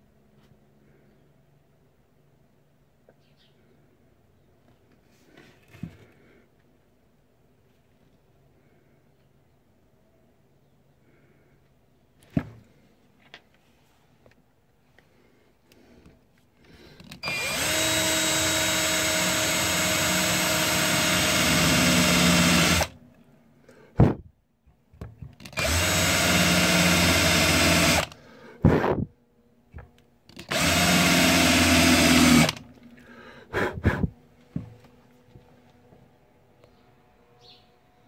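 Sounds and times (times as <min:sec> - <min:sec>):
electric drill boring into wood: 0:17.1 - 0:22.9, 0:25.4 - 0:28.2, 0:30.3 - 0:32.7.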